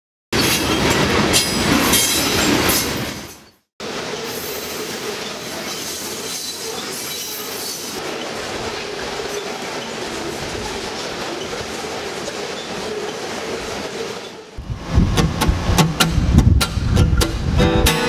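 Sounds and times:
freight train wheels clacking: 0:15.1 - 0:18.0.

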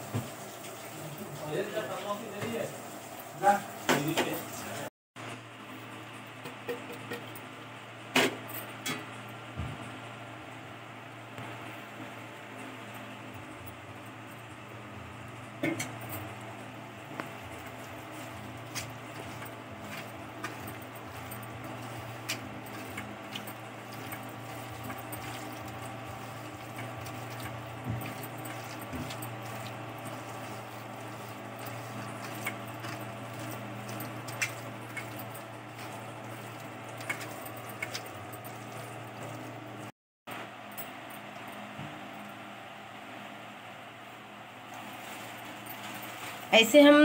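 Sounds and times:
hands squishing meat in marinade: 0:17.6 - 0:39.9.

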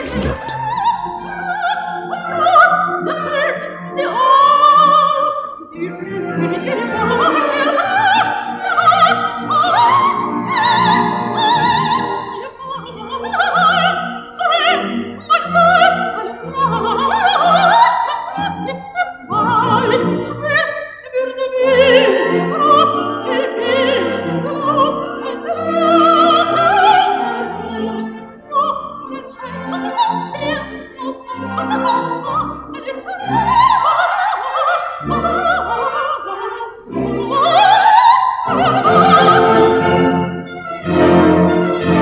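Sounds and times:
operatic singing with vibrato: 0:00.0 - 0:42.0.

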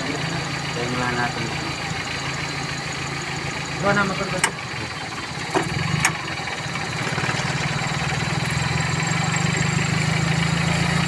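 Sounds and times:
car engine idling: 0:00.0 - 0:11.0
sharp clicks: 0:04.4 - 0:04.9, 0:05.5 - 0:06.3.

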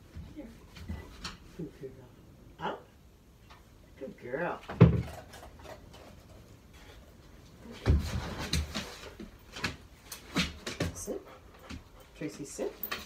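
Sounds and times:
dog thumping on plywood: 0:04.7 - 0:05.3.

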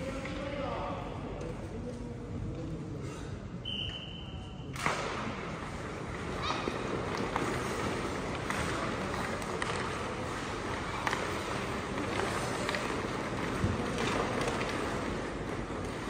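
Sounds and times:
hockey sticks and puck clacking: 0:04.7 - 0:16.0
skate blades scraping ice: 0:05.6 - 0:16.0.

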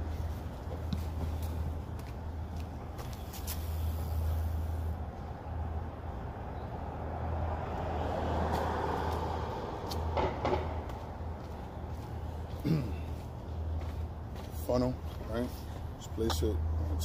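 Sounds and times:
car driving past: 0:06.4 - 0:11.3.

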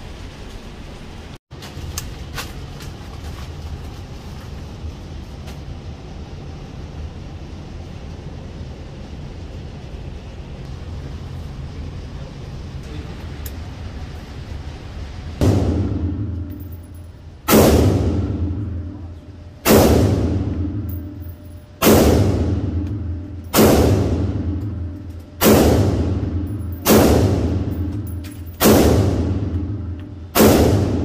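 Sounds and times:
rifle shots echoing indoors: 0:15.4 - 0:31.0.

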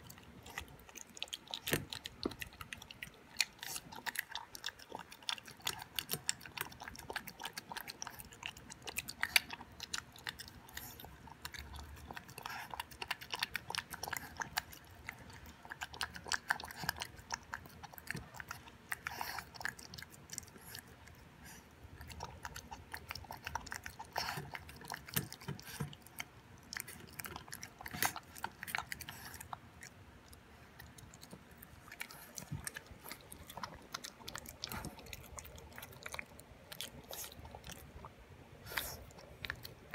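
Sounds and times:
puppy chewing wet food: 0:00.0 - 0:39.9.

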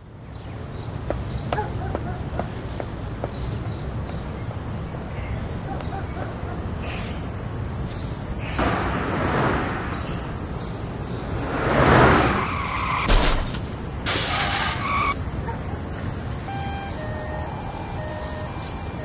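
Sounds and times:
tyres skidding: 0:07.3 - 0:19.0
car passing: 0:08.6 - 0:13.1.

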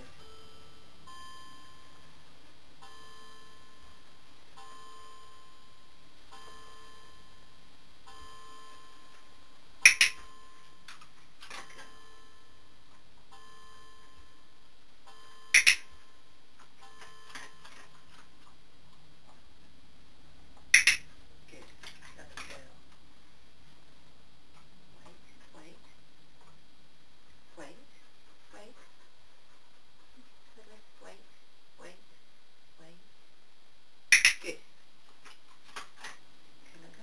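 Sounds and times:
clicker double click: 0:09.8 - 0:10.2, 0:15.6 - 0:15.8, 0:34.1 - 0:34.4.

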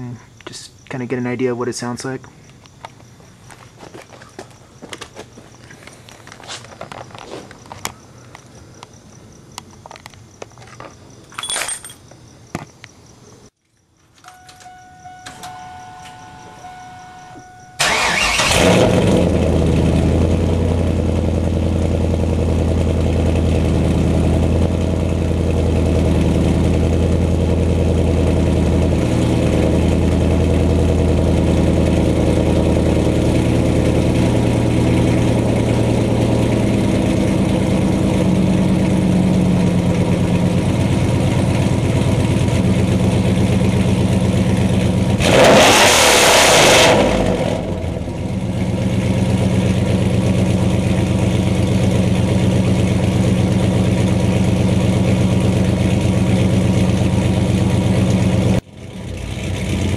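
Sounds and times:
faint steady whine: 0:13.2 - 0:18.5
car engine starting and idling: 0:14.1 - 0:59.9.

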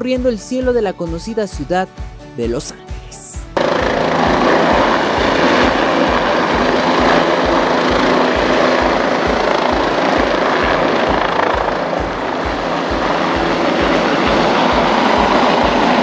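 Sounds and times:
helicopter rotor thumping: 0:03.6 - 0:16.0
rushing noise: 0:03.6 - 0:16.0.

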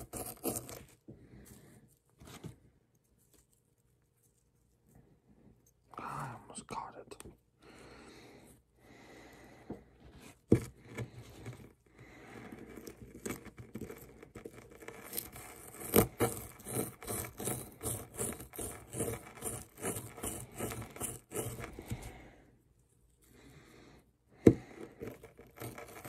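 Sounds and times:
plastic pick scraping hard block: 0:00.0 - 0:01.0, 0:10.1 - 0:22.2, 0:24.4 - 0:26.0.

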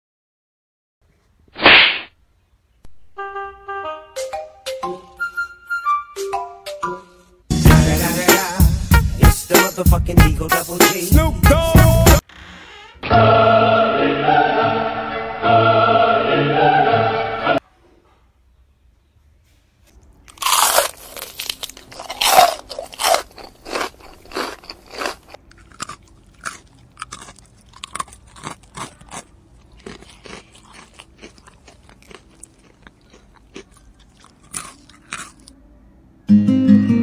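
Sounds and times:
kitten crunching leaves: 0:20.2 - 0:35.6.

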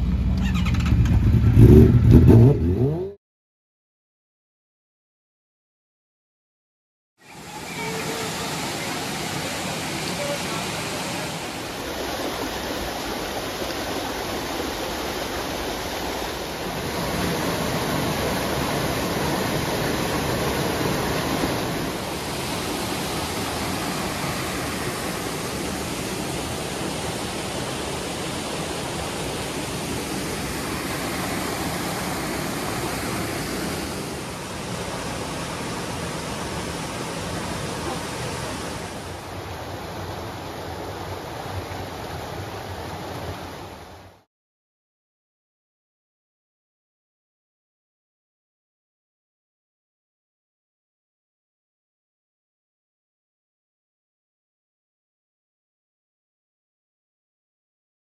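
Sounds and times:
stream rushing over rocks: 0:07.2 - 0:44.3.

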